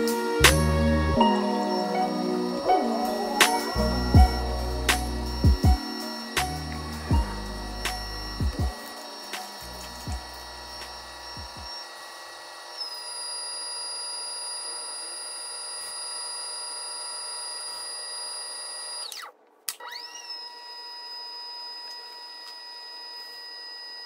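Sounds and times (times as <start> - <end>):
pottery wheel motor whining: 1.7 - 19.2.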